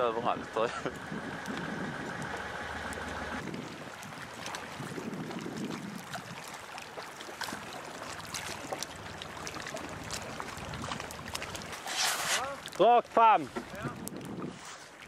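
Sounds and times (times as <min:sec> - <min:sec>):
low rumble: 0:00.0 - 0:03.8
water washing along a boat hull: 0:00.0 - 0:15.0
ice clicks and crackles: 0:07.3 - 0:15.0.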